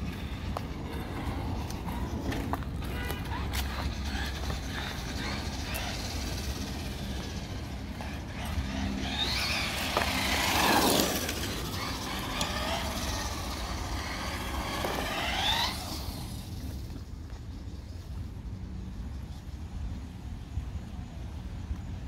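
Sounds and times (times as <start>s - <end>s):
tyre and drivetrain noise: 0.0s - 22.0s
electric motor whining: 2.8s - 17.0s.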